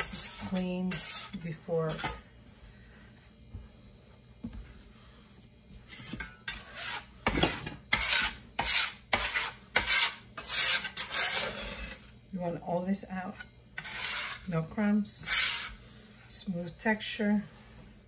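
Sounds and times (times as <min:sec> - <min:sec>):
bench scraper scraping on marble: 0:00.0 - 0:02.2, 0:05.9 - 0:12.1, 0:13.8 - 0:15.8.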